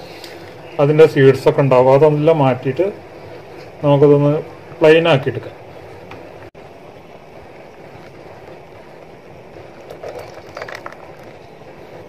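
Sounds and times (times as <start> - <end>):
juice trickling onto strainer: 9.8 - 11.4.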